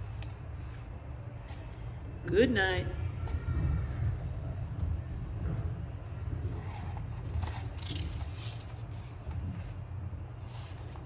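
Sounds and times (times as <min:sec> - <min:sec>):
book pages turning: 0:06.6 - 0:09.8.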